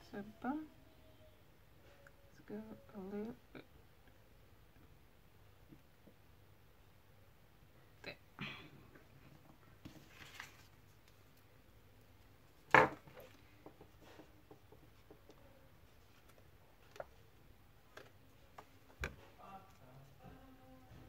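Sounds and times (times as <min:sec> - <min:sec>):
paper rustling: 0:09.8 - 0:11.4.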